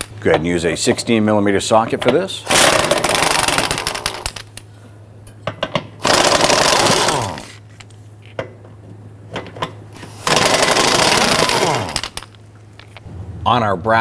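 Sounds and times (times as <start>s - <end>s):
cordless power tool spinning: 2.5s - 4.2s, 6.0s - 7.5s, 10.0s - 12.2s.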